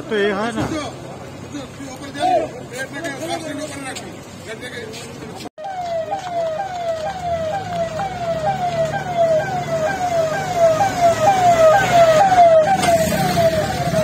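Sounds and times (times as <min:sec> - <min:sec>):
vehicle engine rumble: 0:00.0 - 0:14.0
siren wailing: 0:05.6 - 0:14.0.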